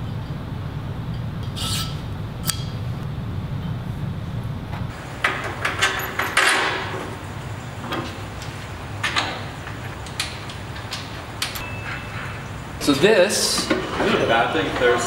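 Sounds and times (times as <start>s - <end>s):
low shop hum: 0.0s - 15.0s
metallic clanks and knocks: 5.2s - 12.6s.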